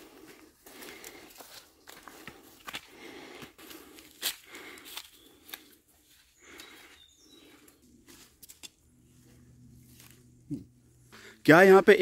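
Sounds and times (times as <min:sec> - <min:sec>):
footsteps on leaf litter: 0:09.1 - 0:10.3.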